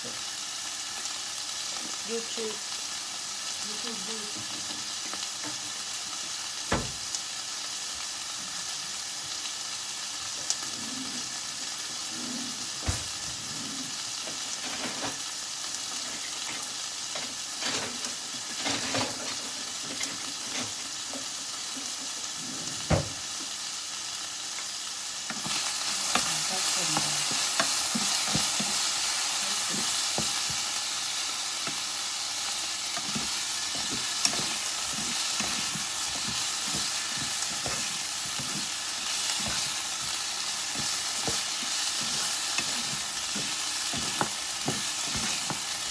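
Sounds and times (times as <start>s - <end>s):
meat sizzling in a frying pan: 0.0s - 45.9s
knocks against a pan: 6.7s - 7.0s.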